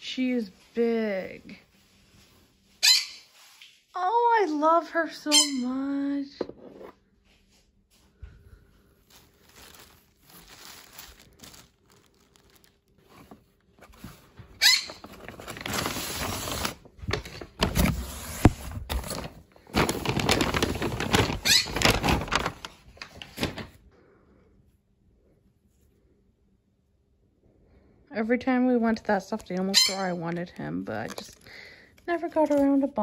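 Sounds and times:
plush and cardboard rustling: 8.8s - 16.8s, 17.6s - 22.7s
plastic packaging crinkling: 9.0s - 23.7s, 28.9s - 33.0s.

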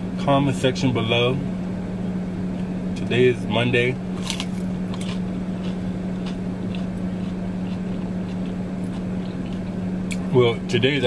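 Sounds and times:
car air conditioning hum: 0.0s - 11.0s
person chewing: 4.2s - 10.3s.

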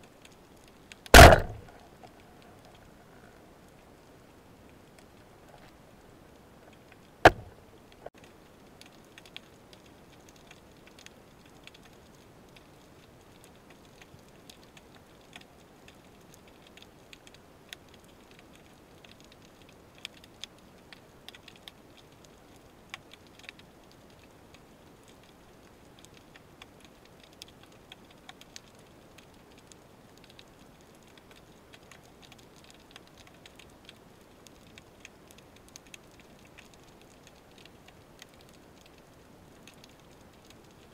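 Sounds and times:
faint underwater clicks and crackles: 0.0s - 40.9s
low steady hiss: 0.0s - 40.9s
loud sharp knock: 1.2s - 1.6s, 7.3s - 7.5s.

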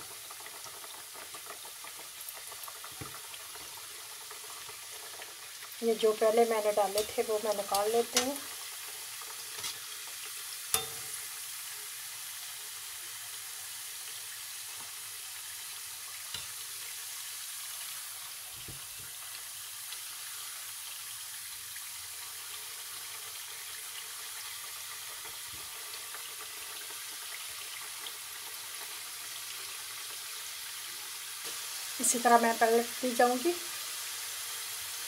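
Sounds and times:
dough sizzling in hot oil: 0.0s - 35.0s
slotted spoon knocking pan: 6.9s - 8.4s.

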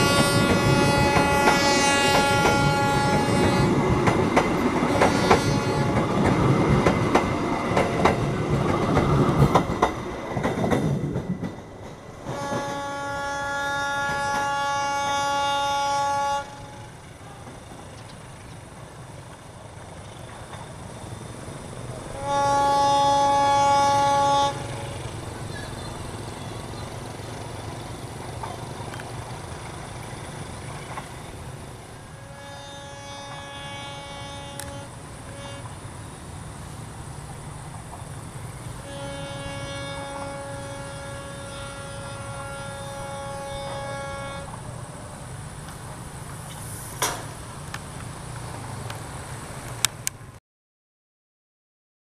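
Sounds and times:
locomotive horn blasts: 0.0s - 3.8s, 4.9s - 6.0s, 12.3s - 17.5s, 22.2s - 25.1s, 32.0s - 35.8s, 38.8s - 44.6s
low rumble of departing train: 0.0s - 50.4s.

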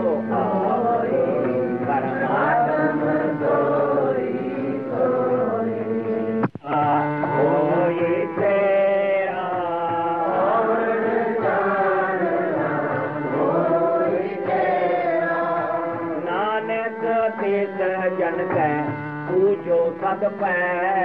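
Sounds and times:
person singing devotional chant: 0.0s - 21.0s.

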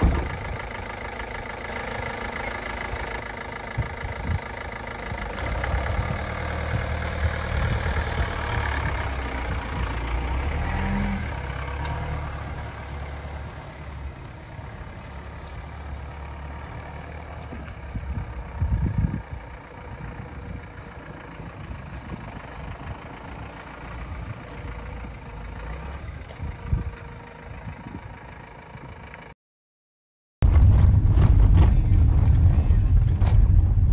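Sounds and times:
short low thump: 0.0s - 0.6s, 30.4s - 33.9s
van engine driving past: 0.0s - 29.3s.

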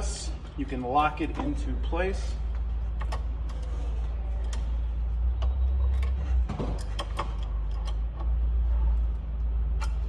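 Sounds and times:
steady low hum: 0.0s - 10.0s
metal tool arm clicks and knocks: 5.4s - 8.4s.

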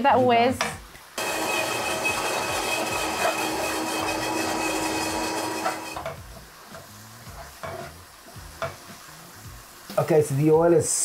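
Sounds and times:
blender running: 1.2s - 6.0s.

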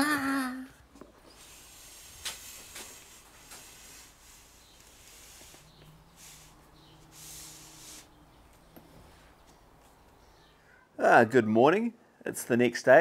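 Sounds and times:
glass rubbing against rubber: 1.2s - 8.3s.

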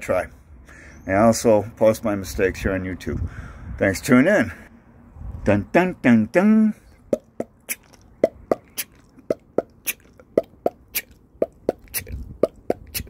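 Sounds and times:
tongue clicks in beatbox rhythm: 7.1s - 13.0s.

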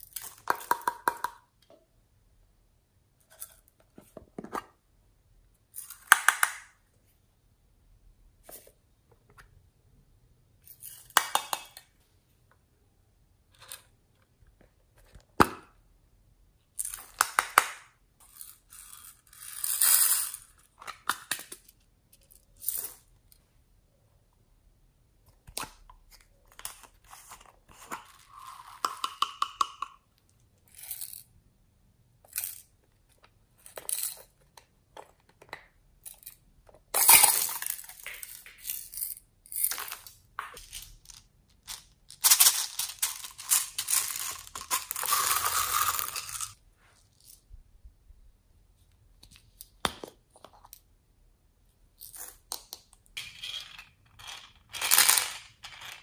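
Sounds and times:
plastic beads clicking and clinking: 0.0s - 1.4s, 30.6s - 31.3s, 37.0s - 47.4s, 52.0s - 56.0s
beads rattling as poured: 18.2s - 20.5s, 37.0s - 47.4s, 53.2s - 56.0s.

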